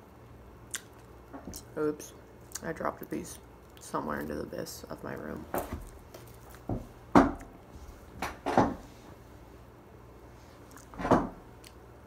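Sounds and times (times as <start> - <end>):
knocks and thumps: 5.5 - 7.5, 8.2 - 8.9, 11.0 - 11.4.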